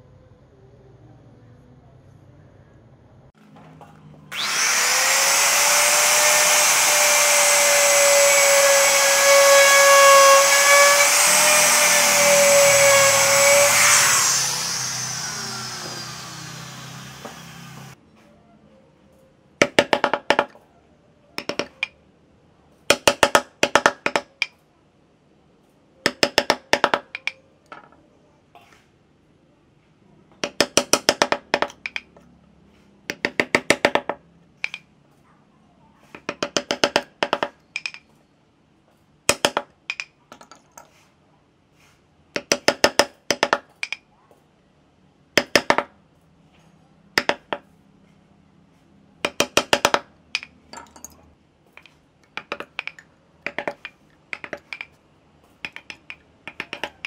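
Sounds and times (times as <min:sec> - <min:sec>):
mallet tapping chisel into wood: 0:47.2 - 0:47.6, 0:49.2 - 0:50.5, 0:51.8 - 0:55.0, 0:55.6 - 0:57.0.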